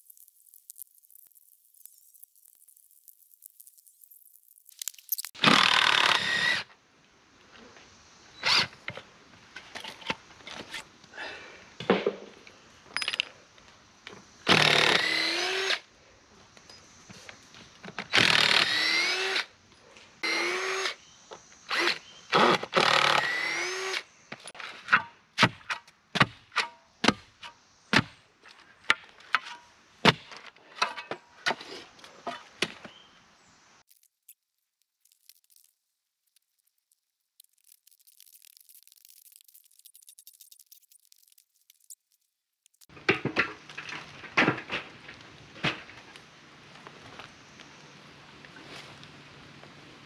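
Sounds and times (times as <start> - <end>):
cordless drill bursts: 5.4 - 6.6, 18.1 - 19.4, 21.7 - 24.0.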